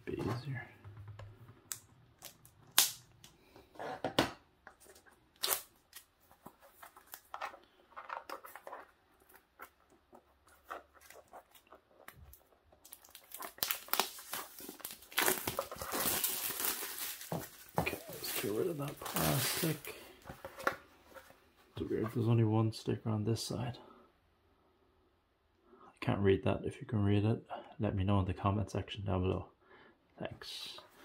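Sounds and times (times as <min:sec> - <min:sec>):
plastic wrap being torn: 0:01.7 - 0:03.2, 0:05.3 - 0:06.1, 0:12.8 - 0:19.8
plastic crinkling: 0:04.8 - 0:20.0.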